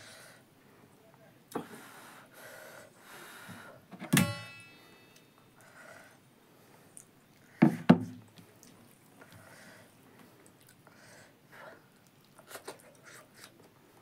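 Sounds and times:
dishware clink: 4.1 - 5.2.

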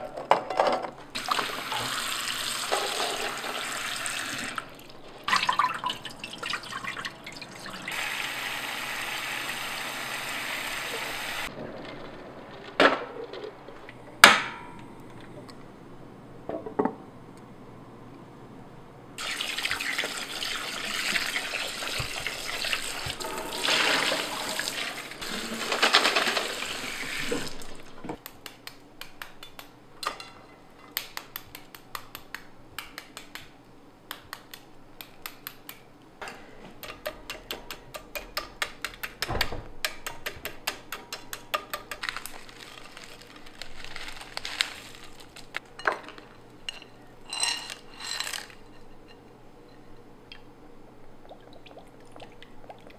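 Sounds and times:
water running: 1.2 - 11.5, 19.2 - 28.2.

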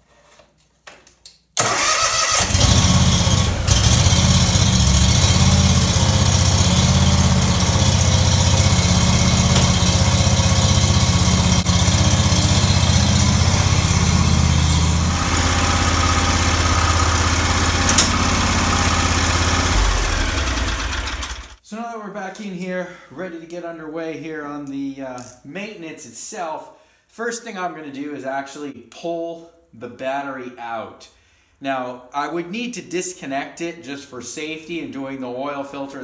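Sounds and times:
lawn tractor engine starting and running: 1.6 - 21.6.

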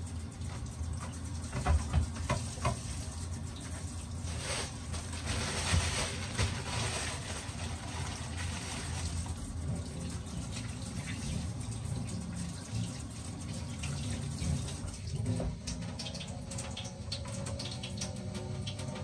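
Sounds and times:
tap running into metal sink: 0.5 - 3.0.

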